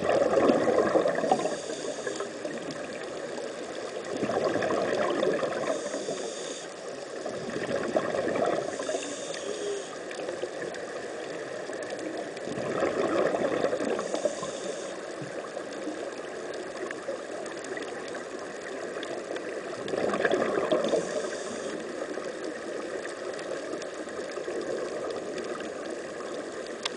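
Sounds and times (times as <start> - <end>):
air bubbling underwater: 0.0 - 1.5, 4.1 - 5.8, 7.3 - 8.6, 12.5 - 14.1, 19.8 - 21.1.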